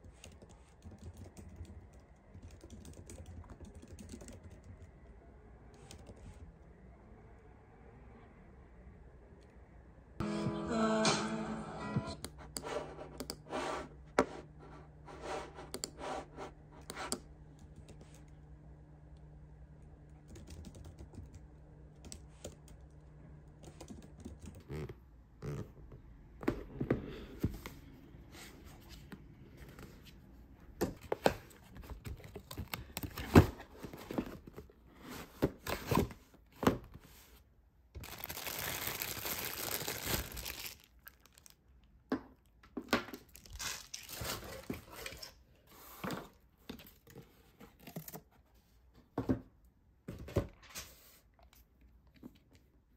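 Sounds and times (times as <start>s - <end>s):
laptop keyboard typing: 0.0s - 5.0s, 20.2s - 21.4s, 23.6s - 24.6s
plastic packaging crinkling: 38.0s - 41.7s, 43.3s - 45.2s.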